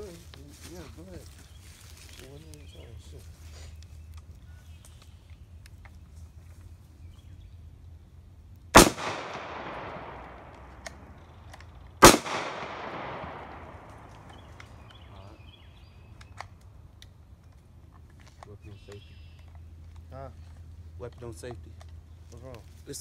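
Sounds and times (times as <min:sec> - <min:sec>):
gunshots with echo: 0:08.8 - 0:11.1, 0:12.0 - 0:14.3.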